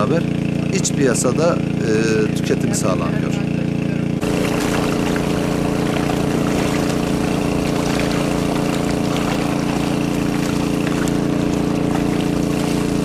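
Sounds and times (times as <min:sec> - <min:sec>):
motor humming: 0:02.9 - 0:13.0
fish splashing in water: 0:04.2 - 0:13.0.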